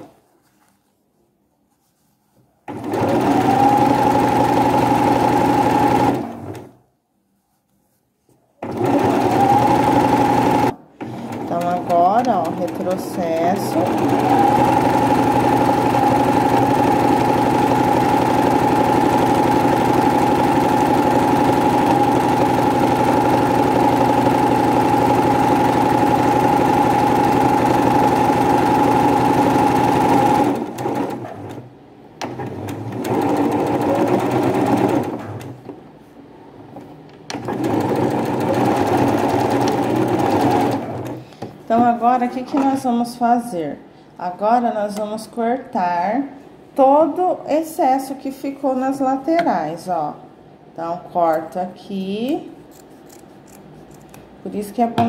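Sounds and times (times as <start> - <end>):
sewing machine stitching: 2.7 - 6.7, 8.6 - 31.6, 32.2 - 35.6, 37.3 - 41.2.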